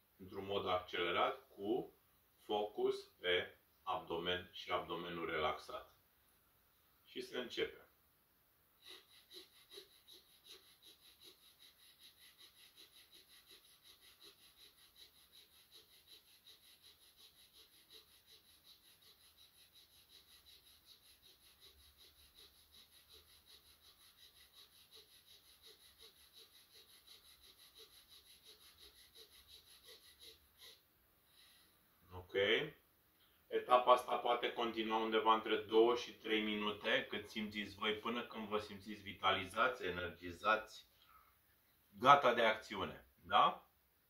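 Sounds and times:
man breathing rapidly through nose: 0:08.8 - 0:31.8.

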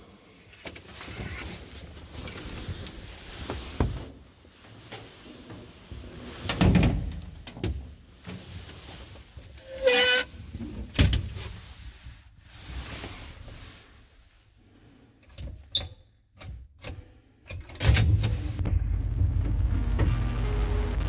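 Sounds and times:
loud low rumble: 0:18.4 - 0:21.0.

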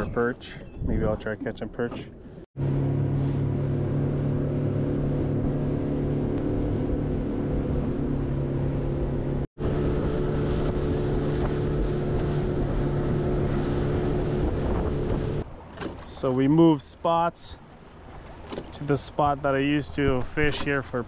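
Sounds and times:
outboard motor droning: 0:01.6 - 0:21.0
wind and water spray: 0:03.0 - 0:15.9.

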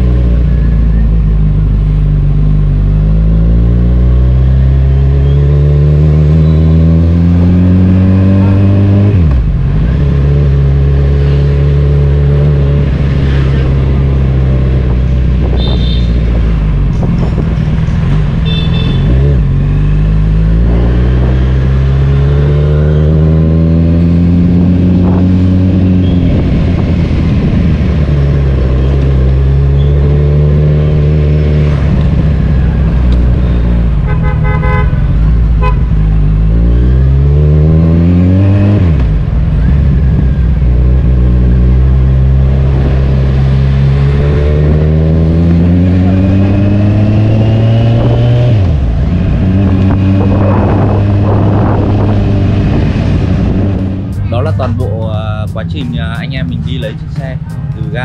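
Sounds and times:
motorcycle engine accelerating: 0:00.0 - 0:58.0
horn beeping: 0:15.5 - 0:16.2, 0:18.4 - 0:19.3, 0:34.0 - 0:36.0.

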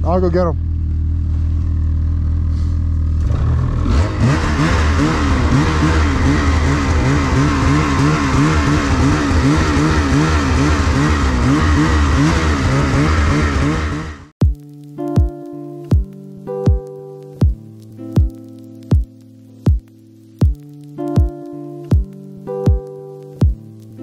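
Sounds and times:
snowmobile engine revving: 0:02.4 - 0:14.4
steady hiss: 0:14.6 - 0:24.0.

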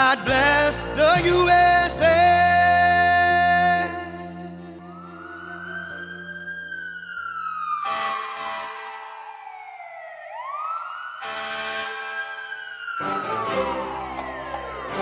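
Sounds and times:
emergency siren wailing: 0:00.0 - 0:15.0
loud siren blasts: 0:03.6 - 0:15.0.

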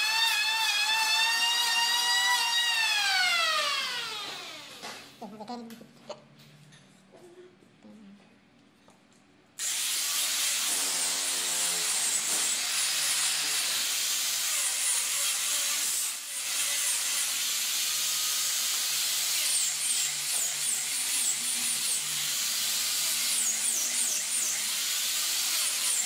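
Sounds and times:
angle grinder grinding wood: 0:00.0 - 0:05.2.

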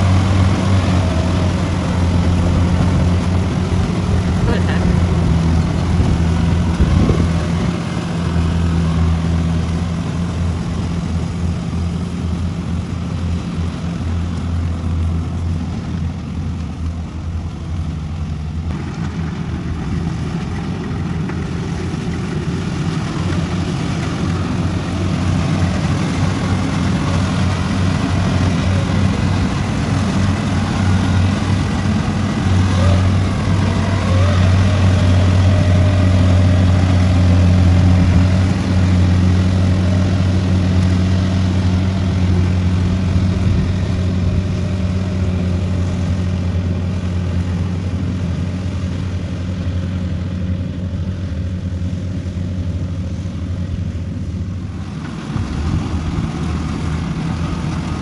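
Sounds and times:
combine harvester engine humming: 0:00.0 - 0:58.0.

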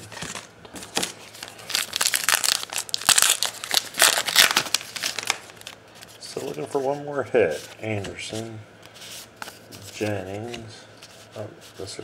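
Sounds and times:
card pack wrapper crinkling: 0:00.2 - 0:06.1.

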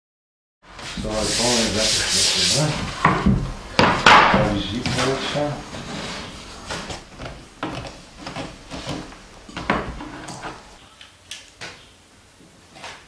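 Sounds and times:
wooden boards knocking and scraping: 0:02.8 - 0:10.8.

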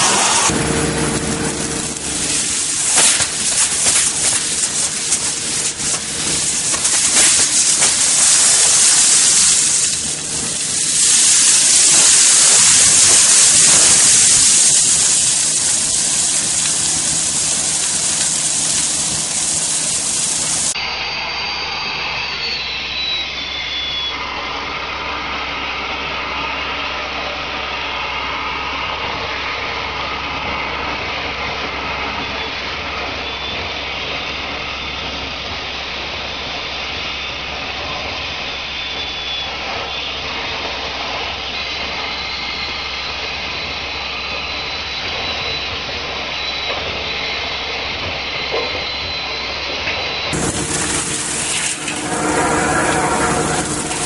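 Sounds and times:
vacuum hose sucking gravel: 0:00.0 - 0:20.8, 0:50.3 - 0:54.0
machine drone with whine: 0:00.0 - 0:54.0.

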